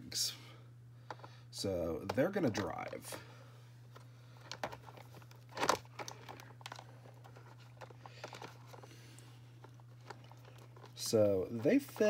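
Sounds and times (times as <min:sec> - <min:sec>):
plastic clicks and rustles: 0:02.0 - 0:03.3, 0:04.0 - 0:12.0
plastic scrape: 0:04.5 - 0:09.0, 0:09.6 - 0:12.0.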